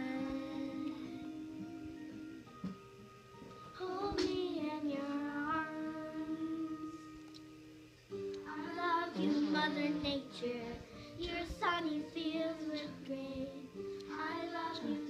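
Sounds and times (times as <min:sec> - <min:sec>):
girls singing: 0:00.0 - 0:02.3, 0:03.8 - 0:06.9, 0:08.4 - 0:15.0
musical accompaniment: 0:00.0 - 0:15.0.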